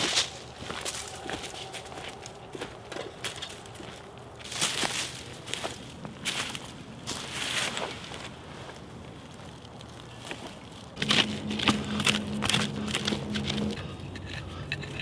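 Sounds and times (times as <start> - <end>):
steady low hum: 11.0 - 15.0
stick striking clay soil: 11.0 - 15.0.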